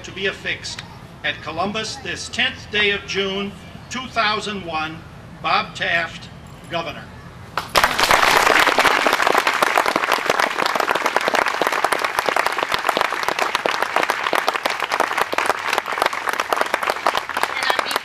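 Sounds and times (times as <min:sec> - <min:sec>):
audience applauding: 0:07.6 - 0:18.0.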